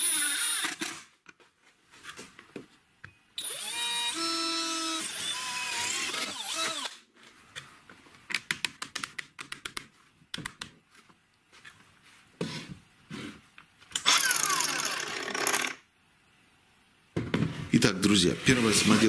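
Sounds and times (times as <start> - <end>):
cordless drill winding down: 3.4 - 6.9, 14.1 - 15.7.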